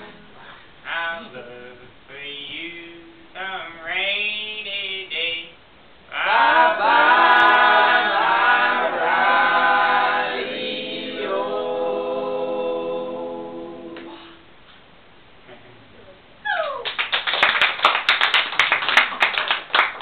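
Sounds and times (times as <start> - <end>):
unaccompanied group singing: 6.1 - 14.4.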